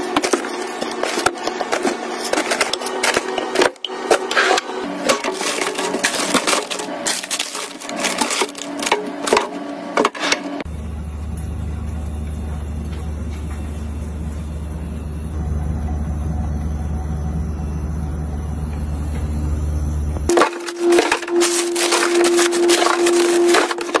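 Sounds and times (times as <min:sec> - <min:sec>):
refrigerator humming: 0:00.0 - 0:24.0
plastic bags crackling: 0:05.0 - 0:09.4, 0:20.3 - 0:24.0.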